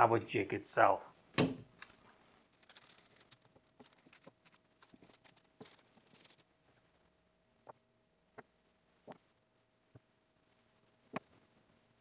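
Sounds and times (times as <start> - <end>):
paper rustling: 1.8 - 6.5.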